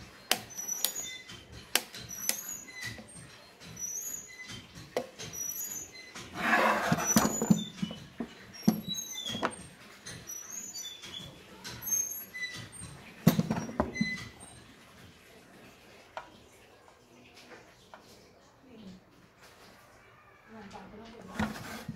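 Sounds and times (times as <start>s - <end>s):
scraping rustle: 6.2s - 7.8s, 21.2s - 21.9s.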